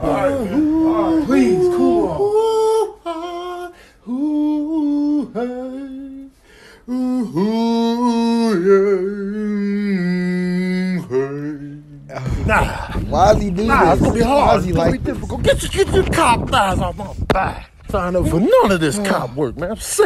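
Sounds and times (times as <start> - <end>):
man humming a tune: 0.0 - 13.0.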